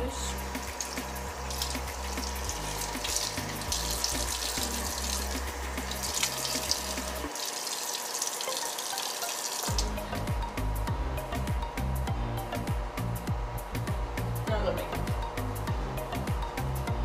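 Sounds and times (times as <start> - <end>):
music with bass beat: 0.0 - 7.3, 9.7 - 17.0
tap water running into sink: 0.4 - 10.0
splashing water on face: 0.5 - 9.9.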